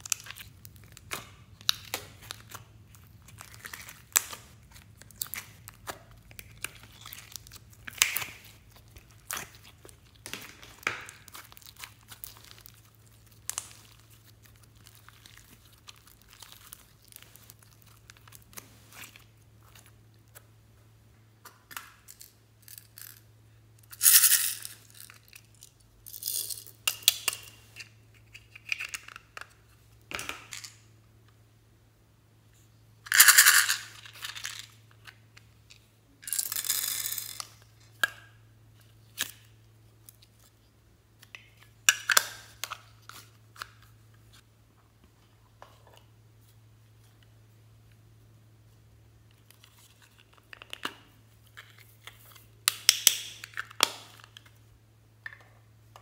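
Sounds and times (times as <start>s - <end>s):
slime crackling and popping: 0.0s - 18.6s
faint low hum: 0.0s - 56.0s.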